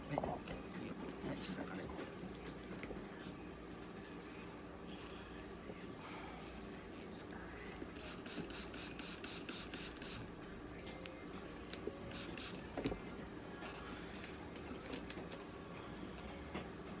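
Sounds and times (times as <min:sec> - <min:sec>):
spray bottle hissing sprays: 0:07.9 - 0:10.3, 0:12.1 - 0:12.6.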